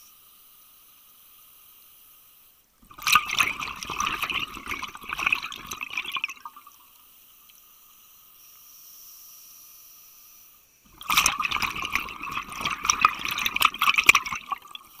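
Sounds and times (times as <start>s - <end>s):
diver breath bubbling underwater: 10.9s - 15.0s.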